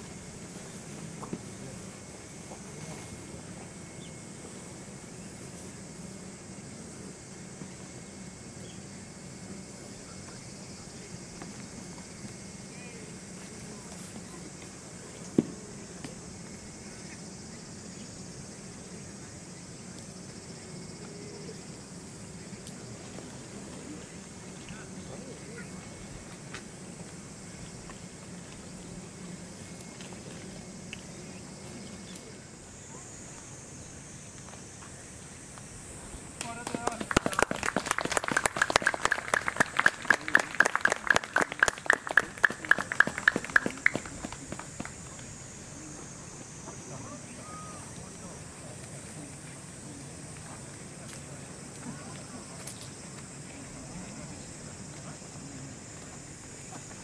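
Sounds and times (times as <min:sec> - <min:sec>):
insects droning: 0:00.0 - 0:57.0
group clapping: 0:36.4 - 0:45.2
steady loud hand clapping: 0:36.4 - 0:45.2.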